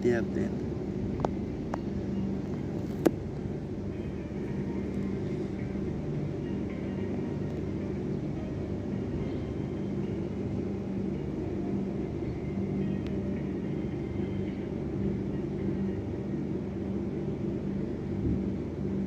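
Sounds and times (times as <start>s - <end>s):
low even hum: 0.0s - 19.0s
steady low rumble: 0.0s - 19.0s.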